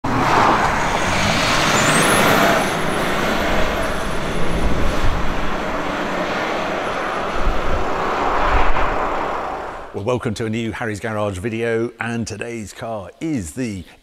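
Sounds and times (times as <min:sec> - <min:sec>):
vehicle pulling away: 0:00.1 - 0:09.9.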